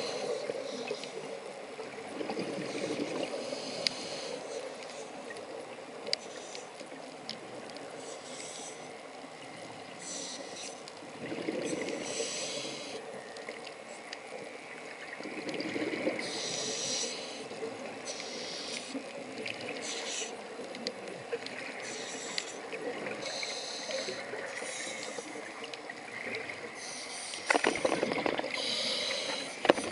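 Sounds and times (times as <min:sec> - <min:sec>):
water noise: 0:00.0 - 0:29.9
regulator breathing hiss: 0:02.8 - 0:05.2, 0:07.9 - 0:09.0, 0:10.0 - 0:10.9, 0:12.0 - 0:13.1, 0:16.2 - 0:19.0, 0:19.8 - 0:20.4, 0:21.8 - 0:25.6, 0:26.8 - 0:27.9, 0:28.5 - 0:29.7.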